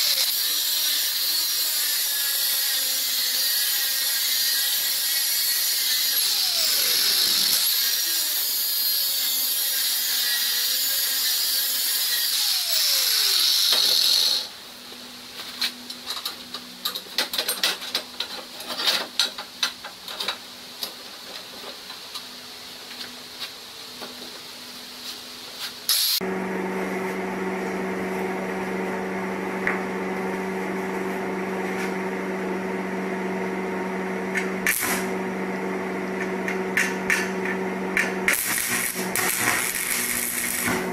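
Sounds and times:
angle grinder cutting steel: 0.0 - 14.5, 25.9 - 26.2, 38.0 - 40.9
sharp electrical crackles: 38.3 - 40.8.

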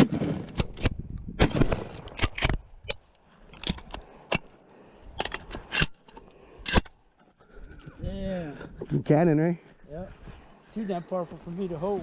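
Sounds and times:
shotgun blast: 1.4 - 2.0
gun handling clacks and rattles: 1.7 - 4.5, 5.1 - 7.6.

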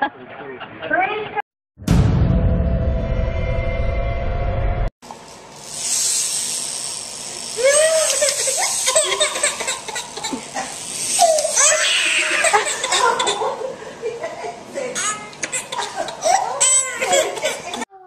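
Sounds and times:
title music: 1.8 - 4.9
baby squealing: 11.2 - 13.4, 15.0 - 17.8.

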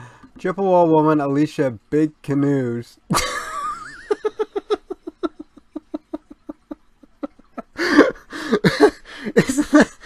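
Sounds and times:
rapid snickering laugh: 3.1 - 10.0.

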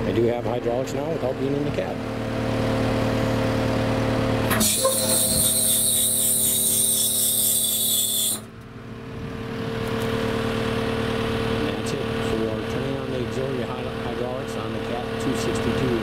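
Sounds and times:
skid steer diesel engine: 0.0 - 16.0
hydraulic hiss: 4.5 - 8.4.

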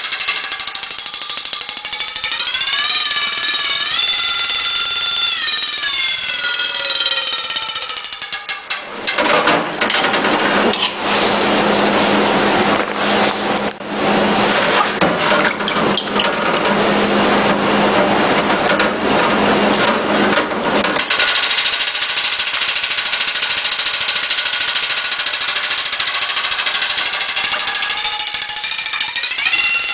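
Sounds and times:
alarm bell ringing under water: 1.9 - 8.1.

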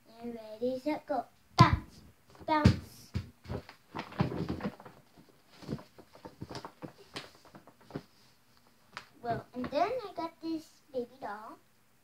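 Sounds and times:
paper bag rustling: 3.5 - 8.4.

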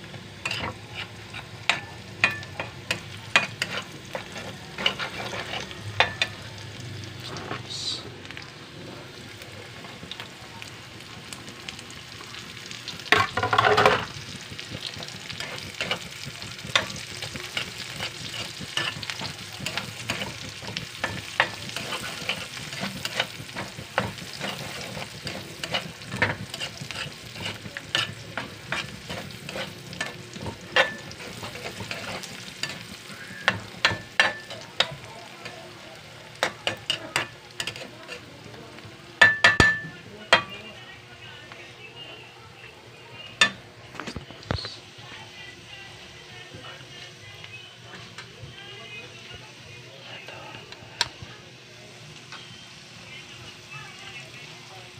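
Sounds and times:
vegetables sizzling in oil: 0.0 - 54.9
metal spatula scraping a pan: 0.4 - 6.4, 14.9 - 35.0, 36.4 - 38.3.

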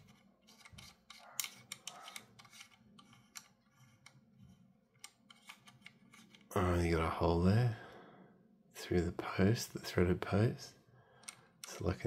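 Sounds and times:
metal nut clicking on threads: 0.5 - 4.2, 11.2 - 12.0.

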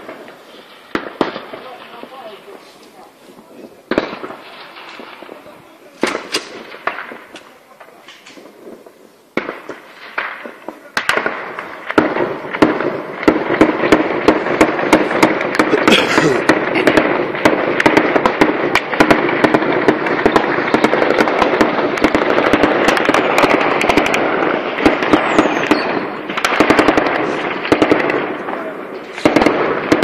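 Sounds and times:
small-arms gunfire: 6.0 - 7.4, 9.4 - 30.0.

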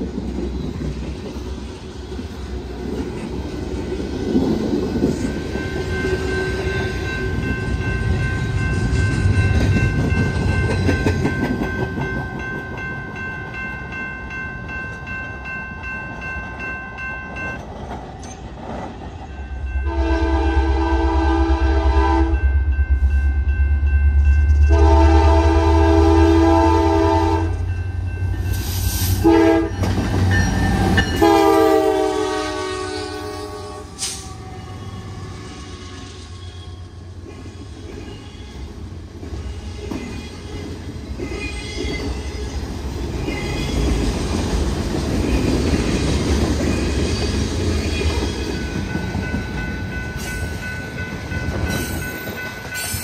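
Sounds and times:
locomotive air horn blasts: 19.8 - 22.4, 24.7 - 27.6, 29.2 - 29.8, 31.2 - 36.4.

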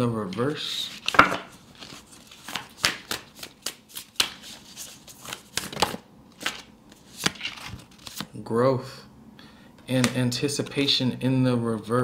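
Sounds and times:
cards shuffling: 0.3 - 8.4, 9.9 - 10.3.

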